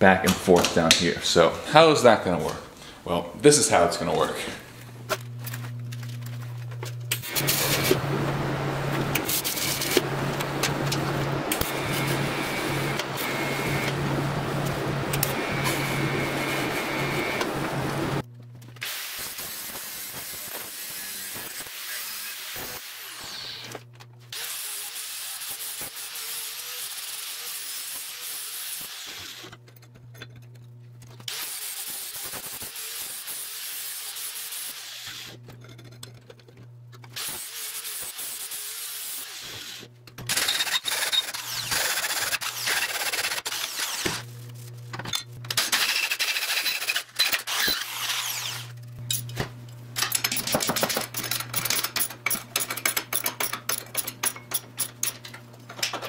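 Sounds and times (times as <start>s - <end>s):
angle grinder grinding steel: 37.2s - 44.3s, 45.6s - 49.2s
ratchet wrench clicking: 50.0s - 55.3s.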